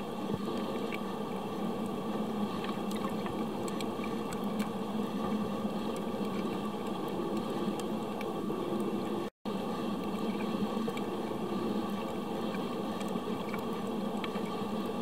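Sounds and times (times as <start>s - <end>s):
constant low hum: 0.0s - 15.0s
faint clicks underwater: 0.3s - 9.3s, 10.0s - 15.0s.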